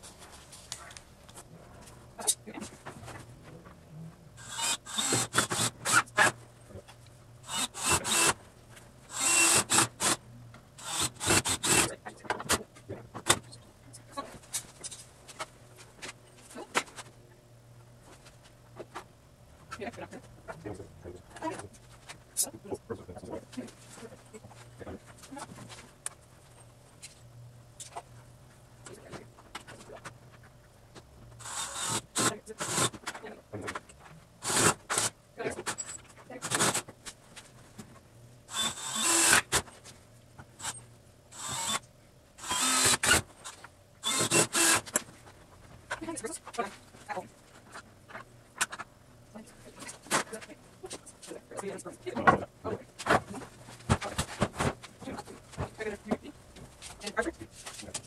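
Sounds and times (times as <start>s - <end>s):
steady low hum: 0.0s - 58.0s
cordless drill driving screws: 4.4s - 6.3s, 7.4s - 8.4s, 9.1s - 10.2s, 10.8s - 11.9s, 31.4s - 32.9s, 34.4s - 35.1s, 38.5s - 39.6s, 41.4s - 41.8s, 42.4s - 43.2s, 44.0s - 44.9s.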